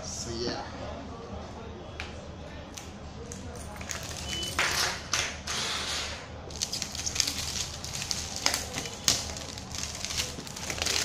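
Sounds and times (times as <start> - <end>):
plastic wrap crinkling: 3.8 - 4.5, 6.5 - 11.0.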